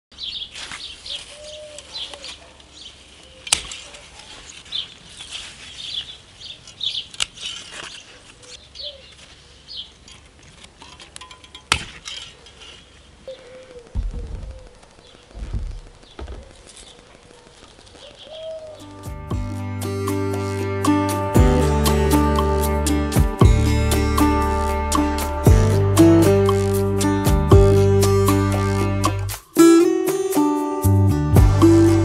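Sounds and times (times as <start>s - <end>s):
small birds chirping: 0.1s - 10.0s, 12.4s - 19.1s
dove cooing: 13.2s - 15.6s, 16.3s - 19.0s
low bumps: 13.8s - 16.8s.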